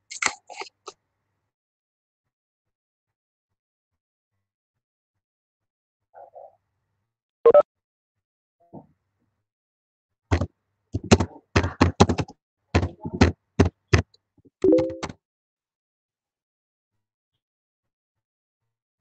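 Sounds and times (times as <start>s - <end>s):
keyboard typing: 14.6s - 15.2s.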